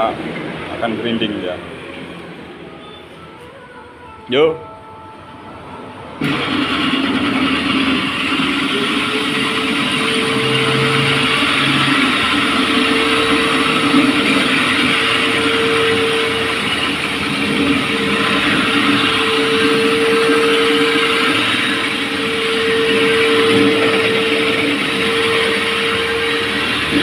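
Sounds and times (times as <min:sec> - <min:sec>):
dust vacuum hum: 0:06.2 - 0:27.0
floor grinder grinding concrete: 0:06.2 - 0:27.0.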